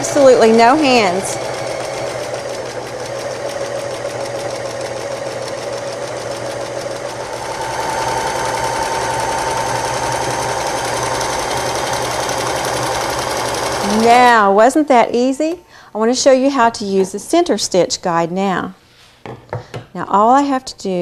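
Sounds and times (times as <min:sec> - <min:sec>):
sewing machine running: 0:00.0 - 0:14.4.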